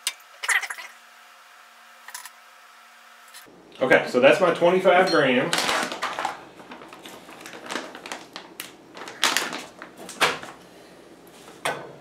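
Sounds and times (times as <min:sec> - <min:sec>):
foil bag crinkling: 0:05.2 - 0:10.6
paper rustling: 0:05.5 - 0:10.6.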